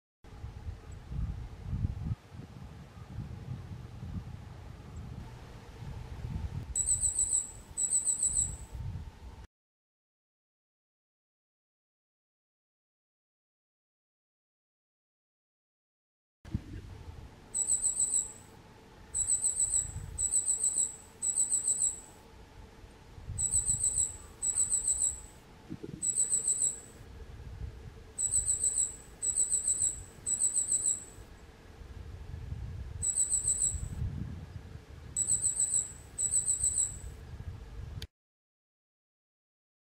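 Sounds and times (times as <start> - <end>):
high thin bird calls: 23.4 - 26.9.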